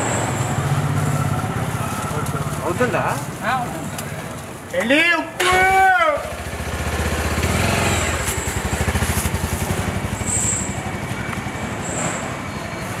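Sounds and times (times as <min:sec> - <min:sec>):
small engine idling: 0:05.8 - 0:11.9.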